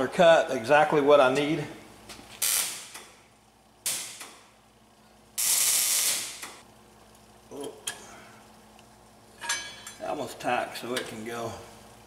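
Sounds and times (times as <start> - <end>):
welding arc crackling: 2.3 - 3.2, 3.8 - 4.6, 5.3 - 6.7.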